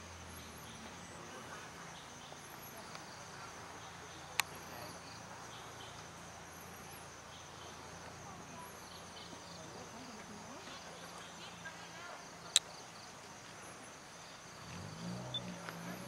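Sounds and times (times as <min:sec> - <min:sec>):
insects trilling: 0:00.0 - 0:16.0
short high insect chirp: 0:14.2 - 0:16.0.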